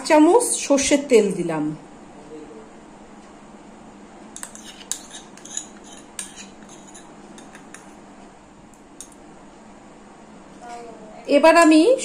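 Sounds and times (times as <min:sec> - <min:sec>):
metal spoon clinking on bowl: 0:04.4 - 0:07.9.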